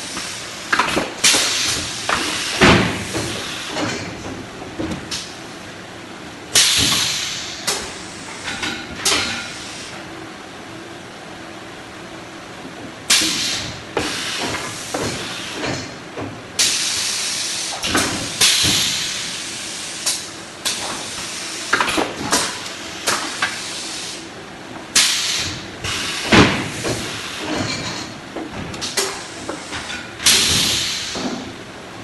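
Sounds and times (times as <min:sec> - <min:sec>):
machine hissing bursts: 0:06.6 - 0:08.5, 0:16.6 - 0:21.8, 0:25.0 - 0:28.0, 0:28.9 - 0:31.4.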